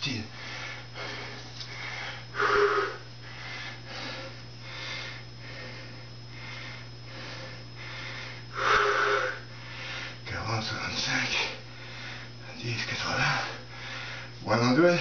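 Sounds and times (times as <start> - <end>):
steady low hum: 0.0 - 15.0
man breathing hard: 0.3 - 10.2, 11.4 - 12.4, 13.2 - 14.4.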